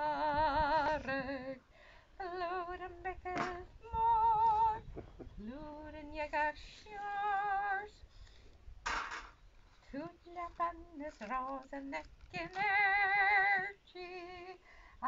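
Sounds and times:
woman singing unaccompanied: 0.0s - 8.1s, 9.8s - 15.0s
singer breathing: 1.6s - 2.2s, 14.6s - 15.0s.

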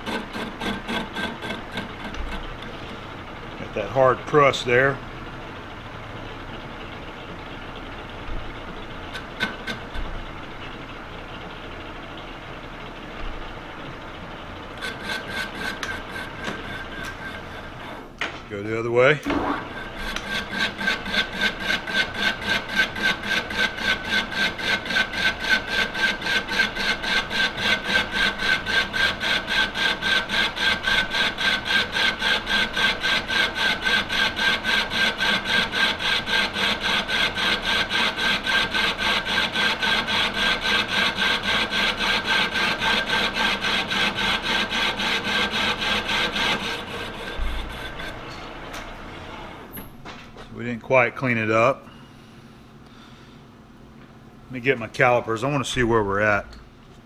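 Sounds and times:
lathe tool rasping cut: 0.0s - 3.0s, 8.9s - 10.0s, 14.7s - 18.1s, 19.3s - 49.7s
steady whine: 0.0s - 5.9s, 13.2s - 23.1s, 42.0s - 57.0s.

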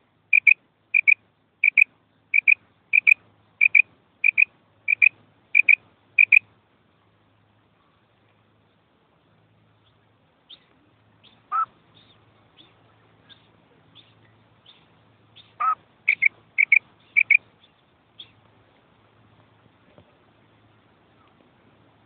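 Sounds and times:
quail calling: 0.3s - 6.4s, 10.5s - 12.7s, 15.4s - 17.4s.

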